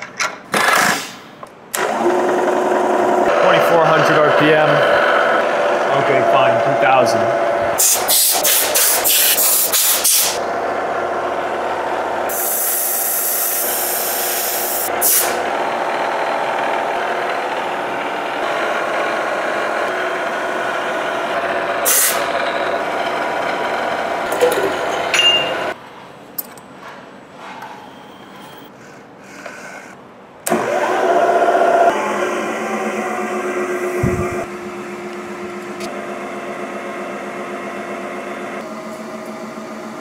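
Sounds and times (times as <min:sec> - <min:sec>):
milling machine whine: 0:01.8 - 0:08.0, 0:10.4 - 0:25.8, 0:30.5 - 0:40.0
loud hiss: 0:12.3 - 0:15.4.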